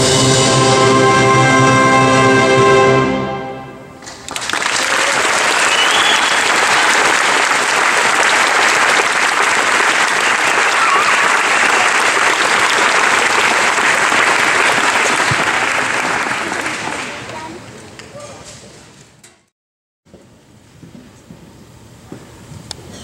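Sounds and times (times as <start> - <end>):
audience applause: 4.0 - 18.0.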